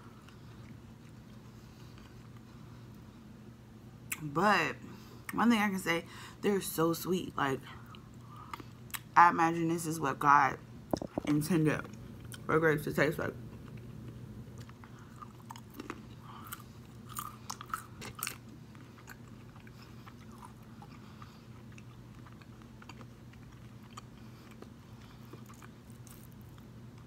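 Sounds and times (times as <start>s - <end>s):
person chewing crunchy nuts: 0.1s - 3.0s, 13.5s - 27.0s.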